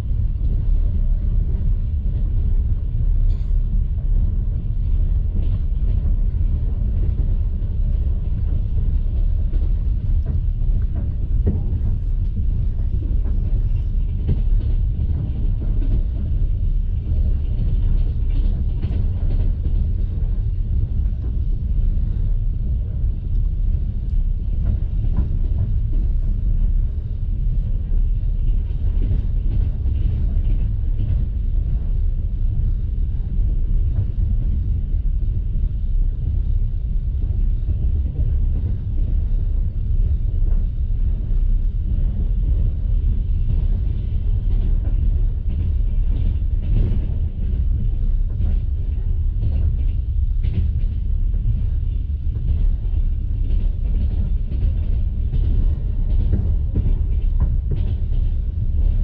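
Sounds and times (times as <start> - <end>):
train carriage rumbling on rails: 0.0 - 59.0.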